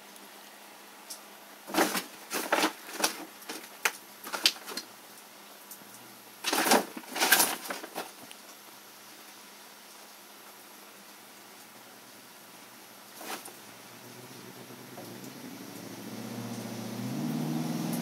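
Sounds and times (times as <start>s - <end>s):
plastic bag crinkling: 1.7s - 4.9s, 6.4s - 8.6s, 13.2s - 13.6s.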